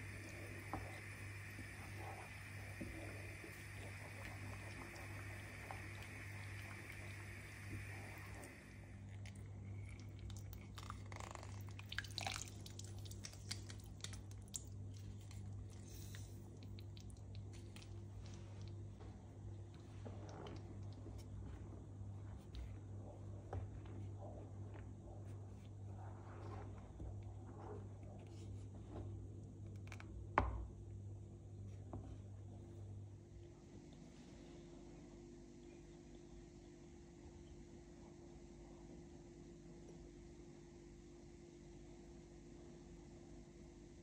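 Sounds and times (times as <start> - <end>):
juice dripping into jam: 0.0 - 18.8
wet squelches: 0.0 - 18.8
steady low hum: 0.0 - 44.0.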